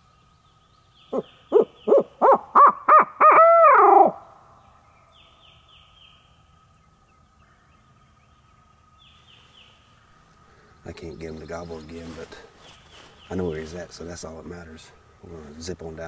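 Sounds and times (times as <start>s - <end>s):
songbird chirps: 0.0s - 3.2s, 3.8s - 16.0s
owl hooter call: 1.1s - 4.3s.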